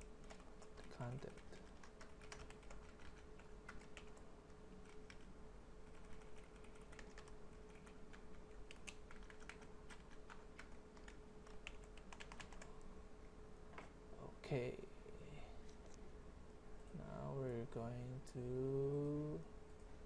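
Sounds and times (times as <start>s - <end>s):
computer keyboard typing: 0.0s - 12.8s.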